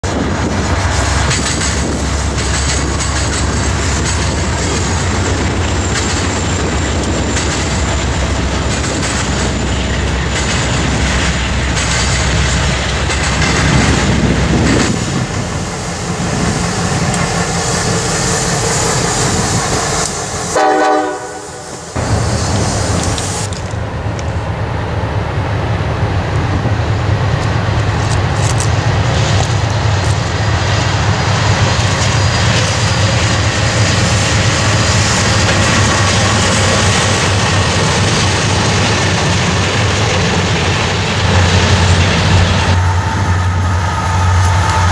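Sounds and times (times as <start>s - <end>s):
diesel locomotive engine rumble: 0.0s - 44.9s
train wheels on rails: 0.0s - 44.9s
train horn: 20.4s - 21.9s.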